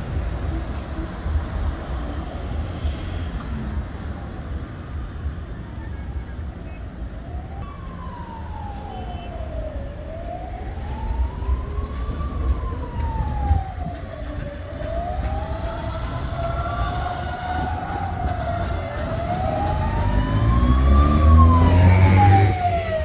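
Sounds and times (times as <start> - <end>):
street traffic rumble: 0.0 - 23.0
emergency siren wailing: 4.4 - 23.0
second siren tone: 7.6 - 9.7, 15.4 - 23.0.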